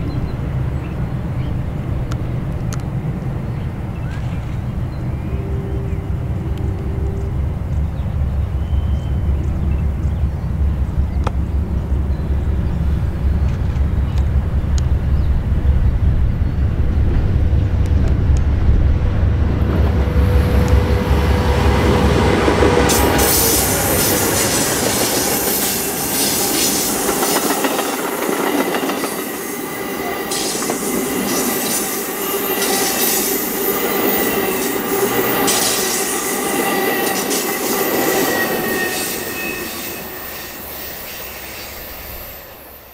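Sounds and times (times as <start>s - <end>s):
diesel locomotive engine rumble: 0.0s - 42.9s
wheel and rail noise: 0.0s - 42.9s
high wheel squeal: 20.0s - 27.4s, 29.1s - 42.9s.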